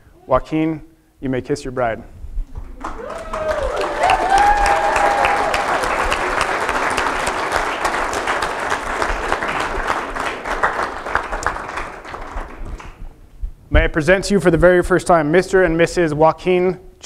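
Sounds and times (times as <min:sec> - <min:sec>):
many hands clapping: 0:02.6 - 0:13.2
person cheering: 0:02.8 - 0:06.8.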